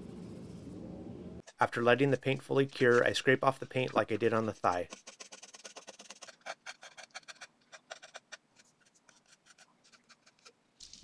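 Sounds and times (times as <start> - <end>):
fingernail scratching paint off plastic: 2.8 - 10.6.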